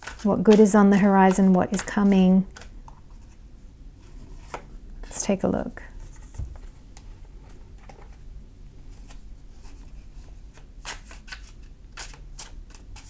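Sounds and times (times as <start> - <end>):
cards shuffled by hand: 8.9 - 13.0.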